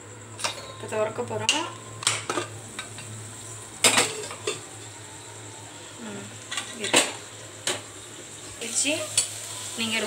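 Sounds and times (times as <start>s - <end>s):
utensils clanking on metal pot: 0.4s - 0.8s, 3.8s - 4.8s, 6.4s - 7.8s.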